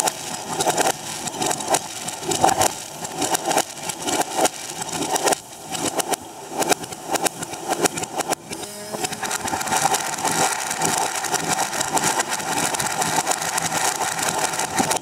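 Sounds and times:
fireworks cracking played backwards: 0:00.0 - 0:15.0.

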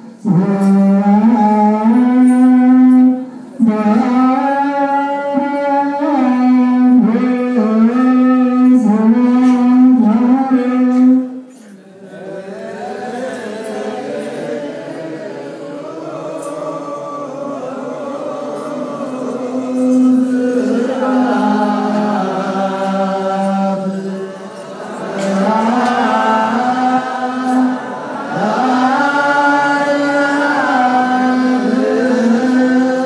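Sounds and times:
man chanting into a microphone: 0:00.0 - 0:33.0
group of men chanting: 0:11.9 - 0:33.0.

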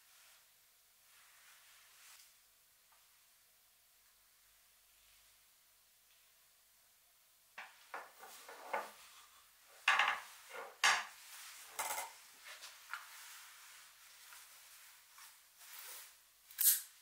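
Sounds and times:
hard objects knocking and clinking: 0:09.9 - 0:11.1.

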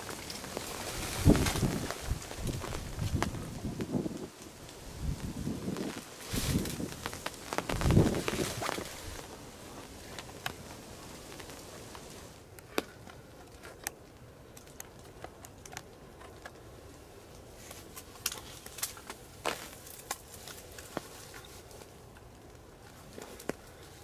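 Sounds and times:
faint steady hiss: 0:00.0 - 0:24.0
rustle: 0:00.0 - 0:24.0
small clicks and ticks: 0:10.1 - 0:16.7.

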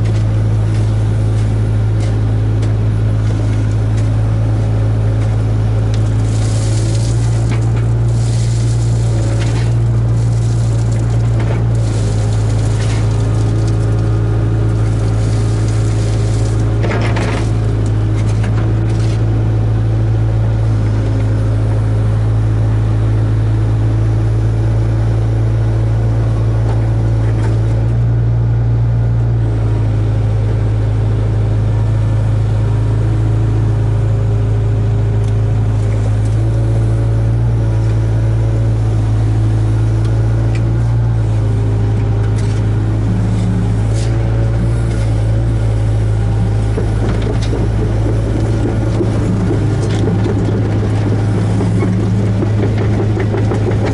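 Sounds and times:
excavator diesel engine running: 0:00.0 - 0:53.9.

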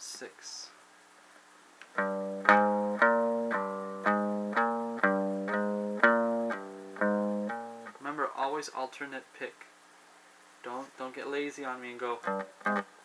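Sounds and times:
guitar single picked notes: 0:01.9 - 0:08.0, 0:12.2 - 0:12.9.

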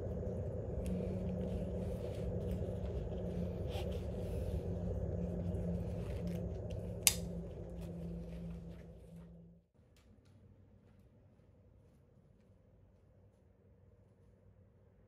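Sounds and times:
low rumble with hum: 0:00.0 - 0:15.0
sharp click: 0:07.0 - 0:07.4.

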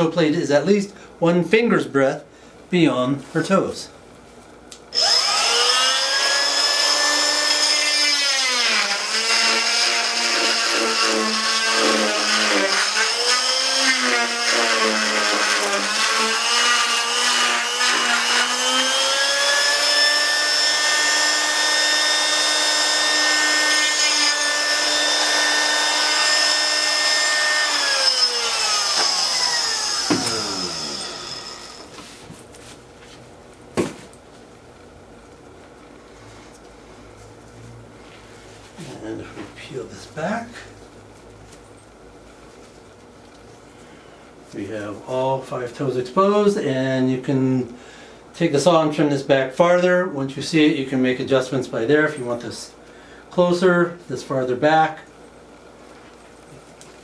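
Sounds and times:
cast saw whining: 0:04.9 - 0:32.0.

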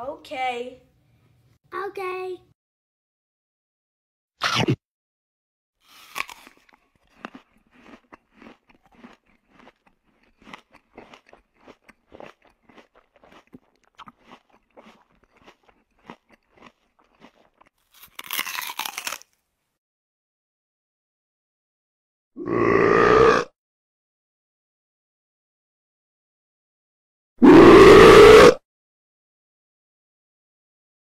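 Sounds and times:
fried food bitten and chewed: 0:05.8 - 0:19.5.

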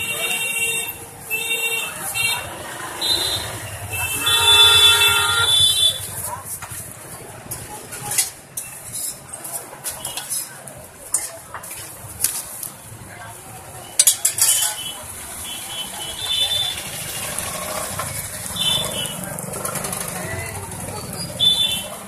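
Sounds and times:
metal utensils clinking on griddle: 0:07.5 - 0:12.4, 0:13.8 - 0:15.0.

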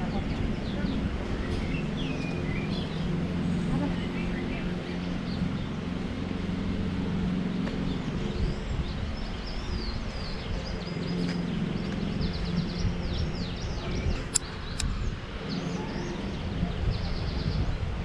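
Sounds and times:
low outdoor rumble: 0:00.0 - 0:18.0
small birds chirping: 0:00.0 - 0:18.0
sharp clicks: 0:14.3 - 0:14.9.

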